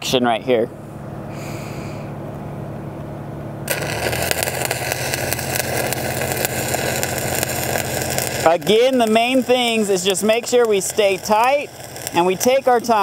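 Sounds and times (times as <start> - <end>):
welder engine running: 3.5 - 13.0
welding arc crackling: 3.6 - 13.0.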